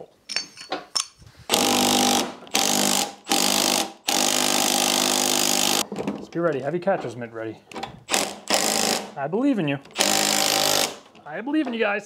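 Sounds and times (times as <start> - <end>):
cordless impact wrench hammering: 1.5 - 5.8, 7.7 - 9.2, 9.8 - 11.2.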